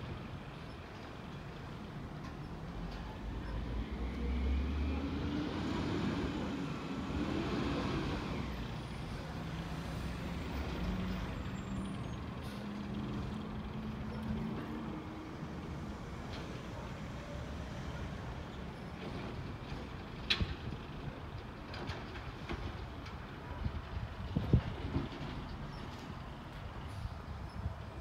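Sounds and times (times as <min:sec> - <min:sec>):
garbage truck engine driving: 0:01.6 - 0:27.1.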